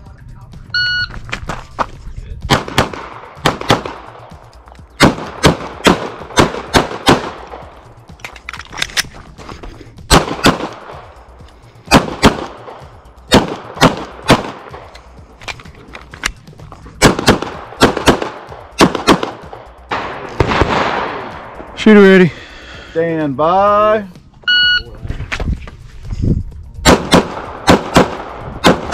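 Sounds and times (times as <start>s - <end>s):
pistol shots: 2.5s - 4.4s, 5.0s - 7.7s, 10.1s - 11.1s, 11.9s - 14.9s, 17.0s - 21.5s, 26.8s - 28.9s.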